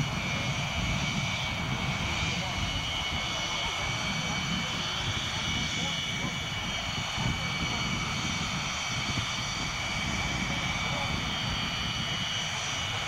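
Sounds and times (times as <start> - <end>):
jet engines whining: 0.0 - 13.0.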